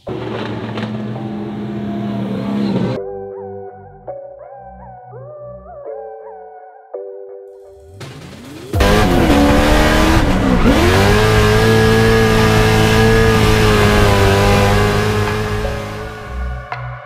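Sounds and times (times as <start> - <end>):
car engine at high revs: 0.0 - 3.0, 8.8 - 16.4.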